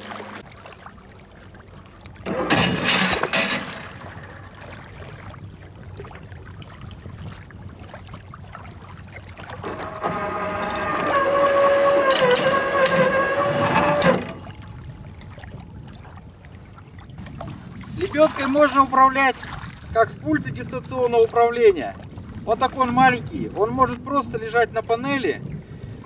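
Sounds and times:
winch motor whining: 2.2s - 4.3s, 9.6s - 15.3s
anchor clunks: 2.3s - 4.2s, 9.6s - 14.9s
anchor rattling clatter: 2.3s - 4.6s, 9.6s - 14.9s.

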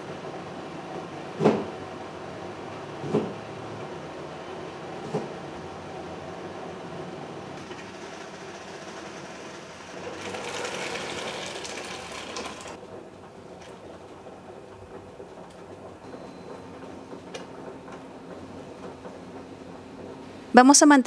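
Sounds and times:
water boiling in a pot: 7.6s - 12.8s.

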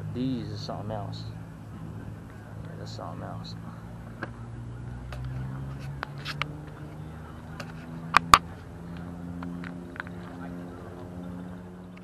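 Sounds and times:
car engine at low revs: 0.0s - 12.0s.

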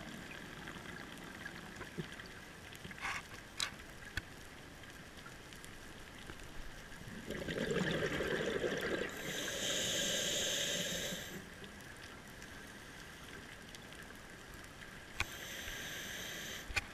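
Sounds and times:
low bubbling rush: 7.0s - 9.2s
regulator breathing hiss: 9.1s - 11.4s, 15.2s - 16.9s.

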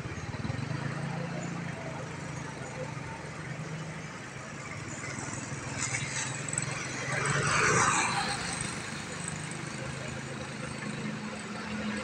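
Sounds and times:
motorcycle passing: 4.9s - 10.4s.

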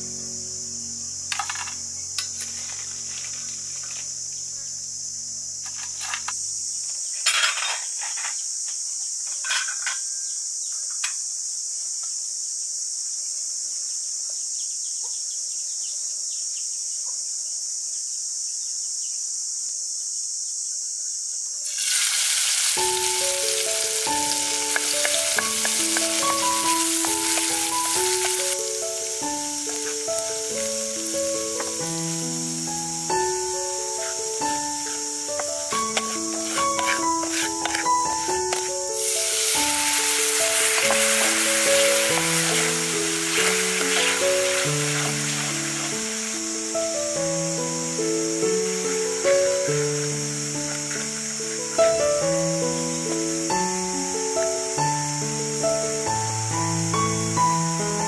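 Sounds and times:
metal spatula clinking and scraping: 7.2s - 8.4s, 9.3s - 10.1s, 34.9s - 45.9s
garlic frying in oil: 21.6s - 32.2s, 35.7s - 46.7s
crab sizzling in a wok: 21.6s - 56.0s
light background music: 22.5s - 58.0s.

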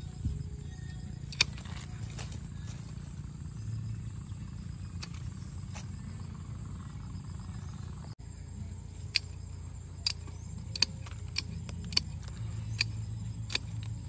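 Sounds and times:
steady low rumble: 0.0s - 14.0s
pruning shears snipping twigs: 1.2s - 3.0s, 4.9s - 5.9s, 9.0s - 14.0s.

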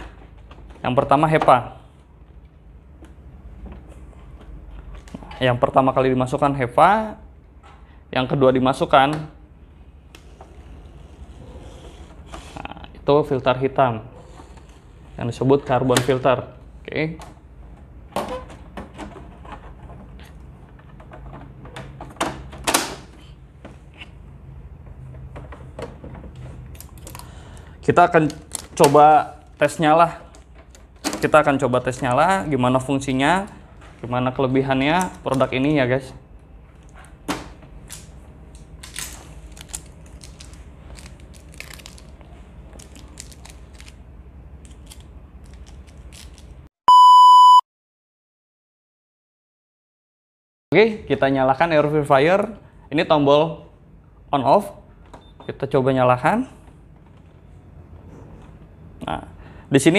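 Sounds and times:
protective tape peeling: 38.8s - 44.0s
electronic beep: 46.9s - 47.6s.

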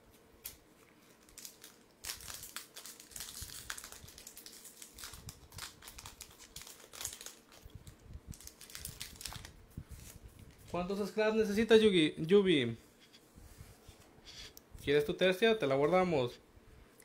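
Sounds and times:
foil wrapper crinkling: 0.4s - 10.8s.

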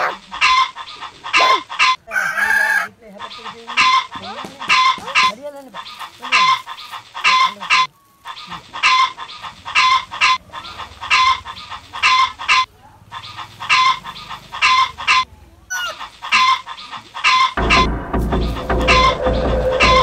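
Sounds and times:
background music with steady beat: 17.6s - 20.0s
deep bass: 17.6s - 20.0s.

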